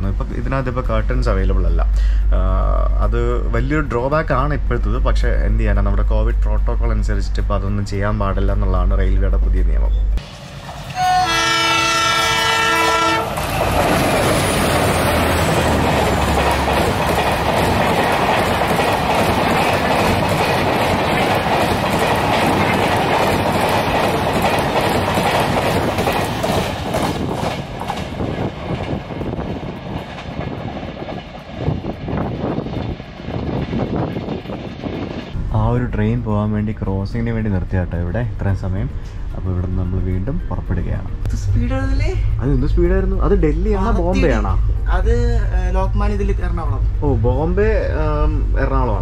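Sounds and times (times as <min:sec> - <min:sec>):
train passing at high speed: 0:10.2 - 0:36.8, 0:38.4 - 0:49.0
train horn: 0:10.9 - 0:13.4.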